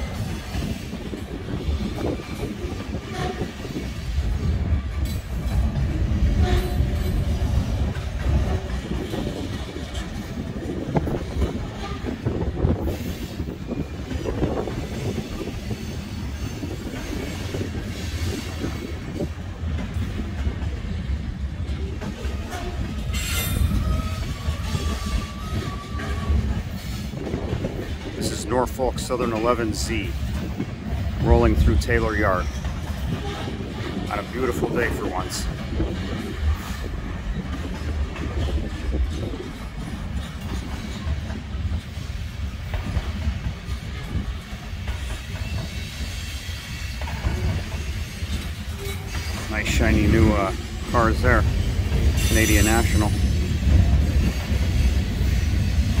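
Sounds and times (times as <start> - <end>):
freight train rumbling past: 0.0 - 56.0.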